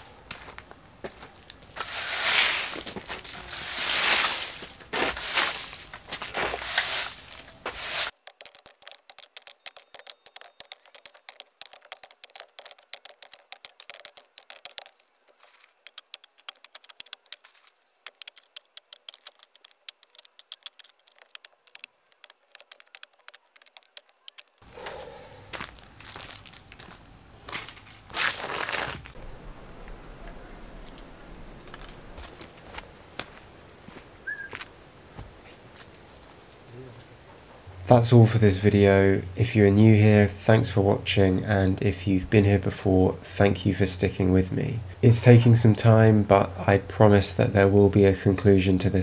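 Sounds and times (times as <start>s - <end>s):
push broom sweeping: 1.7s - 8.2s
rapid crackle of small clicks: 8.1s - 24.7s.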